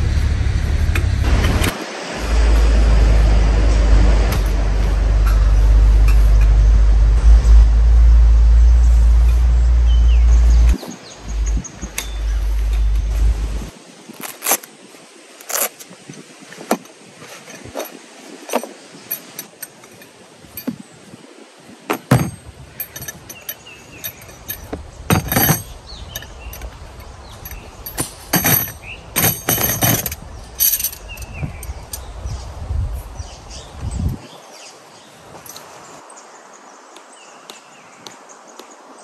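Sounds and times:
low rumble: 0.0 - 13.7
metal tools clinking: 11.8 - 13.2, 15.4 - 21.0, 21.9 - 32.2, 35.3 - 35.8.

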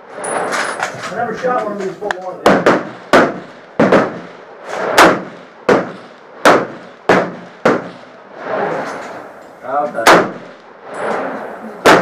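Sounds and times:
rifle shots: 2.4 - 8.2, 10.0 - 10.6, 11.8 - 12.0.

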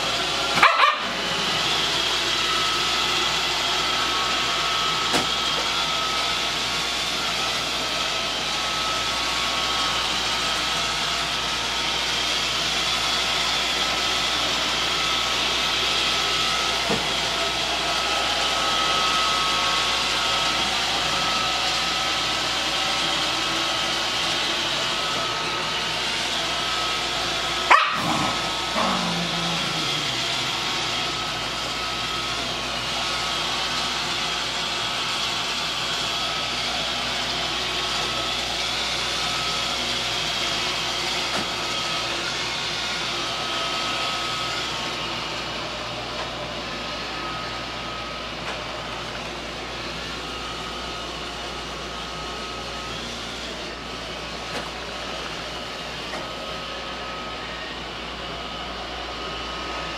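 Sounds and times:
dog yelping: 0.5 - 1.2, 27.6 - 30.2.

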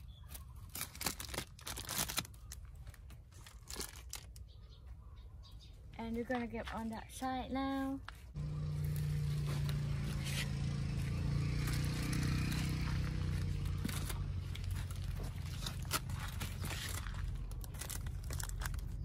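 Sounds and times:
mushrooms scraping and rustling: 7.8 - 19.0.

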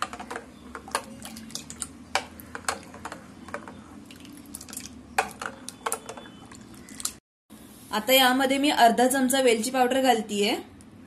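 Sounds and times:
liquid sloshing: 0.9 - 3.2, 4.0 - 7.2.

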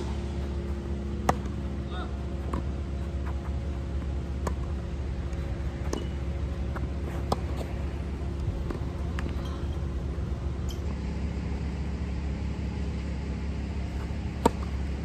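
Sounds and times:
tennis balls struck by rackets: 0.0 - 9.5, 14.0 - 15.0
steady low hum: 0.0 - 15.0.

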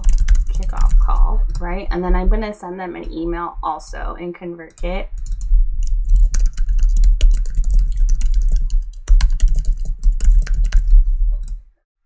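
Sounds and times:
fast typing on keyboard: 0.0 - 1.7, 4.8 - 11.6.

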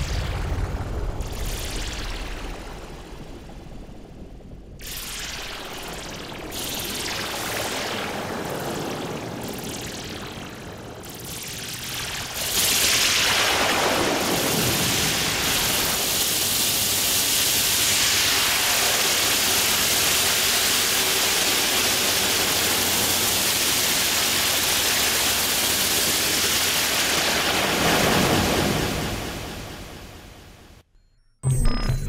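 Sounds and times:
steady rushing noise: 26.0 - 30.8.

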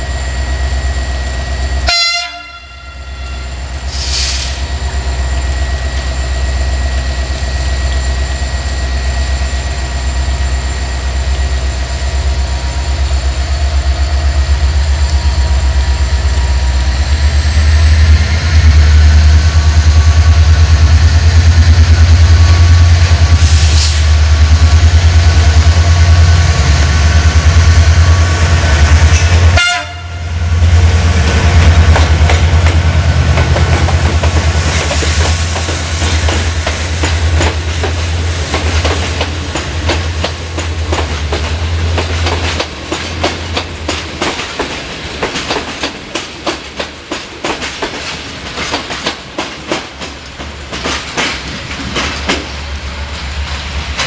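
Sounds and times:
diesel locomotive engine throbbing: 0.0 - 54.0.

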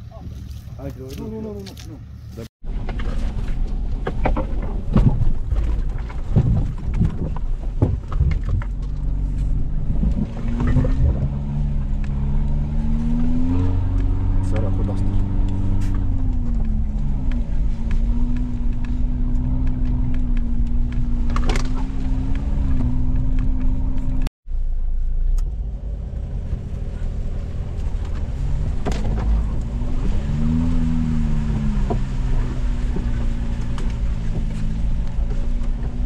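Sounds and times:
vehicle engine running: 8.0 - 36.0.

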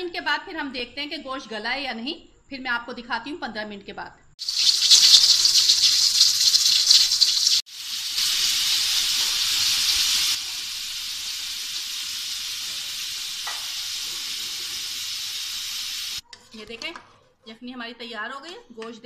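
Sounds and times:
pressure cooker steam hissing: 4.4 - 16.2.

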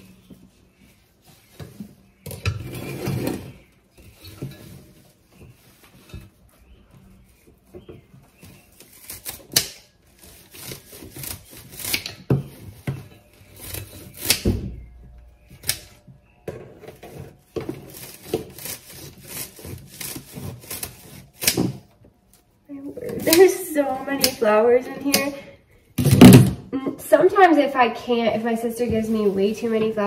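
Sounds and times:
scissors snipping stems: 23.1 - 25.4.

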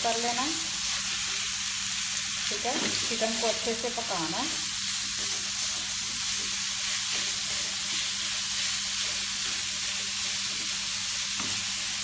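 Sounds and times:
mince sizzling in oil: 0.0 - 12.0
spatula stirring in pan: 4.5 - 12.0.

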